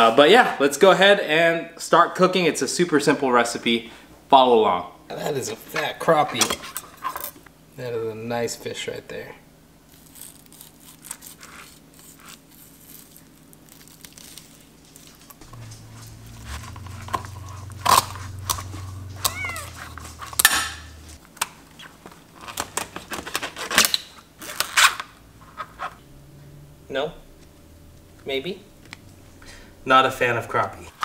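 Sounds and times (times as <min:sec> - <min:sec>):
kitten meowing: 0:17.6 - 0:21.0.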